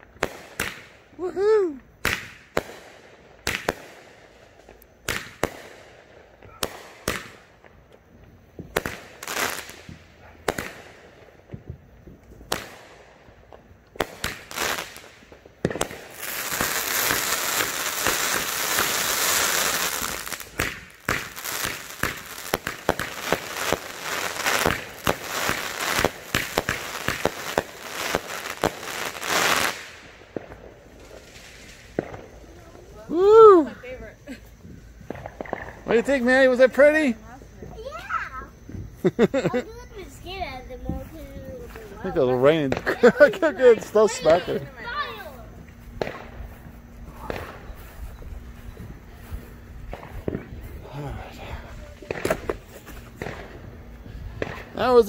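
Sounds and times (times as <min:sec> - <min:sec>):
firework bangs: 0:00.0 - 0:07.8, 0:08.4 - 0:34.0, 0:34.6 - 0:39.3, 0:40.0 - 0:55.0
firework crackling: 0:00.0 - 0:55.0
fast firework pops: 0:00.2 - 0:01.0, 0:02.0 - 0:04.0, 0:04.6 - 0:08.0, 0:08.6 - 0:32.3, 0:35.0 - 0:35.9, 0:42.6 - 0:43.0, 0:45.9 - 0:46.4, 0:47.2 - 0:47.7, 0:49.9 - 0:50.6, 0:52.0 - 0:53.7, 0:54.3 - 0:54.8.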